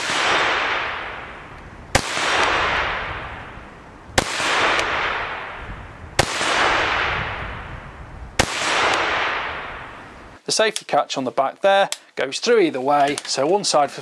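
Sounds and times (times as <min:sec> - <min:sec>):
rifle shots echoing: 0:00.0 - 0:03.6, 0:04.2 - 0:07.7, 0:08.4 - 0:10.1.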